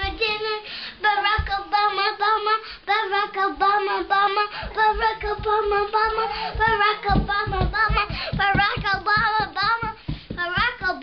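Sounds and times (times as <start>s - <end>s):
girl singing: 0.0s - 11.0s
dull low thumps: 4.7s - 11.0s.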